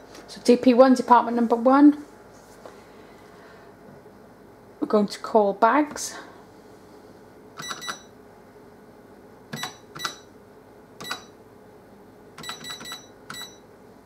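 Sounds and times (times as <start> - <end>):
keypad beeps with clicks: 7.6 - 8.1, 9.5 - 10.3, 11.0 - 11.4, 12.4 - 13.6.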